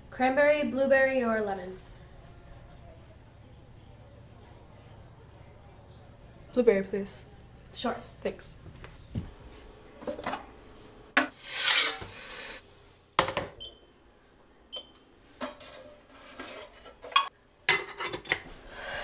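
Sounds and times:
scraping and rustling: 15.4s - 17.2s
metal kettle and tin clinking: 15.4s - 18.5s.

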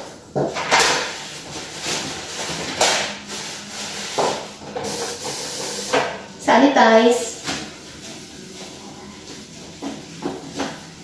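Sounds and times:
toilet paper rustling and tearing: 0.5s - 6.0s, 7.3s - 11.0s.

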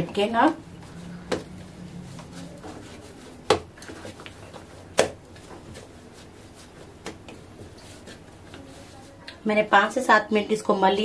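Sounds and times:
dough kneaded by hand: 0.0s - 11.0s
dough thumping on counter: 1.2s - 1.6s, 3.4s - 5.8s.

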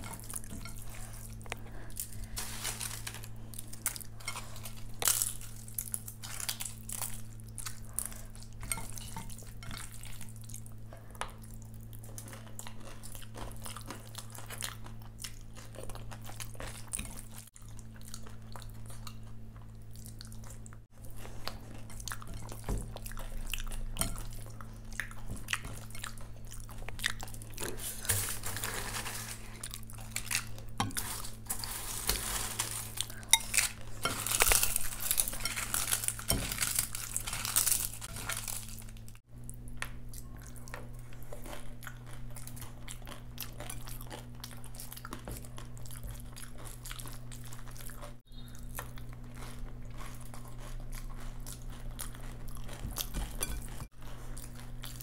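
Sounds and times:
steady low hum: 0.0s - 55.0s
chewing with wet smacks: 9.3s - 27.8s, 39.0s - 55.0s.

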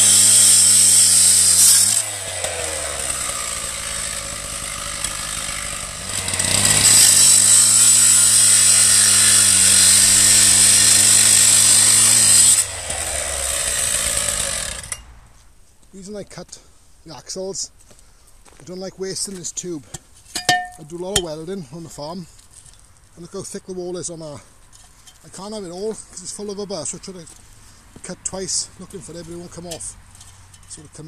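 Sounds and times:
cut-off saw grinding metal: 0.0s - 15.1s.

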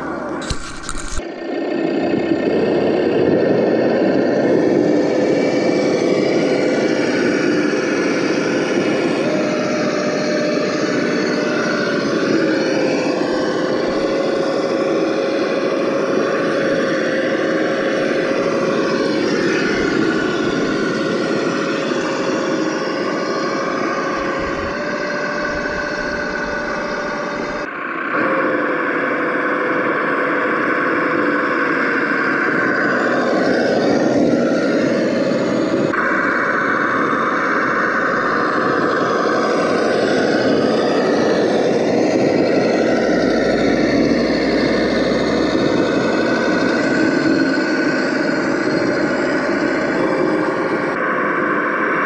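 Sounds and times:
simulated engine revving: 1.4s - 51.0s.

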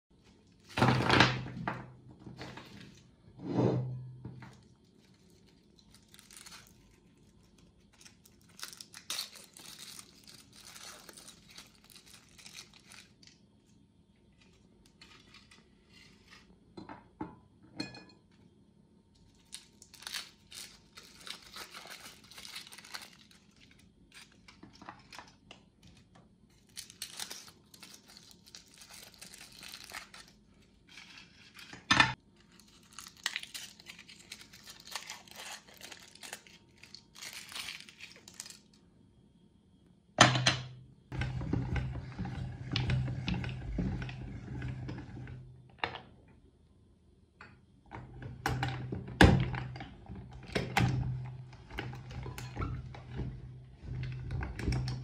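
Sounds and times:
foil wrappers crinkling: 4.4s - 13.4s, 19.3s - 38.8s.

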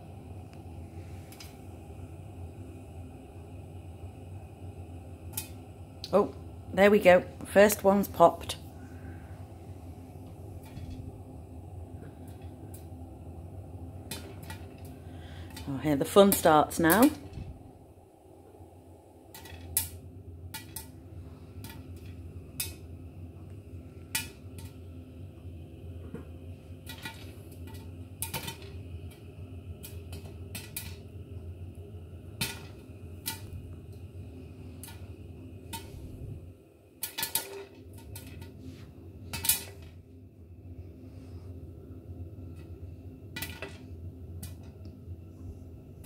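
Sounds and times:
steady low hum: 0.0s - 46.0s
popcorn popping against glass lid: 26.8s - 31.1s, 37.0s - 38.5s.

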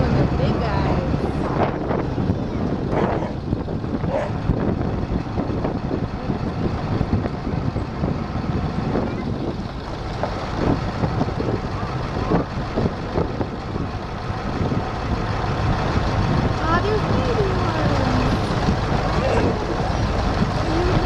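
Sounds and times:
vehicle rumbling on dirt road: 0.0s - 21.0s.

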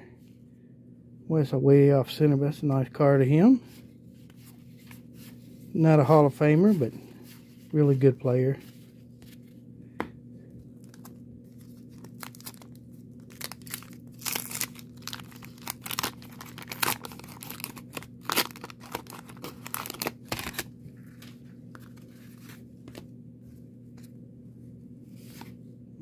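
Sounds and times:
wax paper wrapper tearing: 10.8s - 20.7s.

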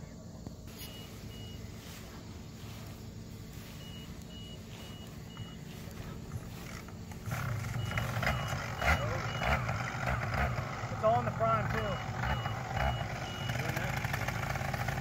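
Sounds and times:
low steady hum: 0.0s - 15.0s
short high electronic beeps: 7.6s - 9.7s, 11.7s - 13.9s.

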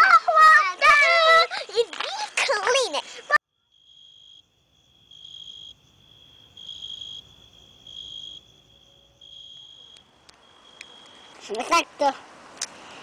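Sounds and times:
cricket chirping: 3.5s - 11.4s.

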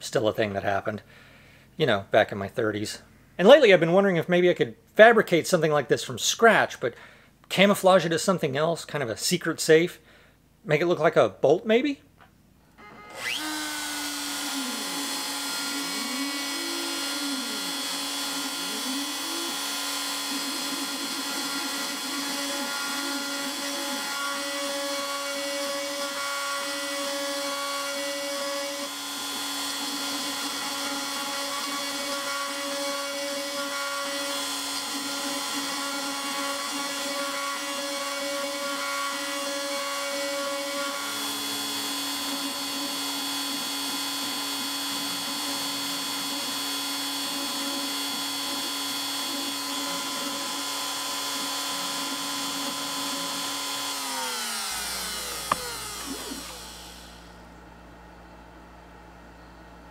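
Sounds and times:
milling spindle whine: 12.8s - 57.3s
end mill cutting metal: 13.0s - 57.3s.

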